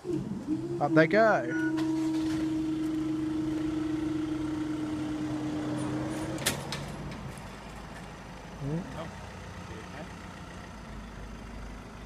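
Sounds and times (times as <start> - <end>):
barrier machinery humming: 0.0 - 7.3.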